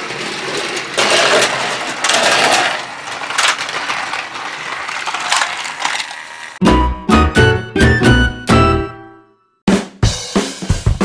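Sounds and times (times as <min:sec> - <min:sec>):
toy trains rattling on track: 0:00.0 - 0:06.6.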